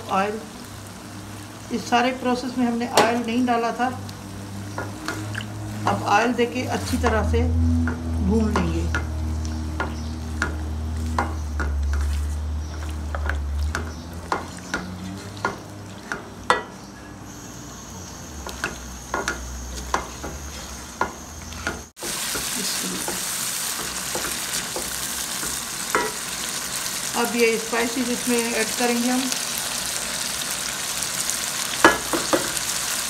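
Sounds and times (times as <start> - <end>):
meat sizzling in oil: 0.0 - 33.0
spatula scraping a pan: 9.7 - 16.8, 18.5 - 26.4.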